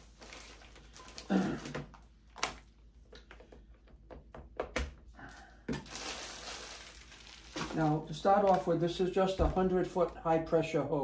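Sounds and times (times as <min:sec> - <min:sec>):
plastic packaging crackling: 0:00.0 - 0:02.8, 0:05.7 - 0:10.2.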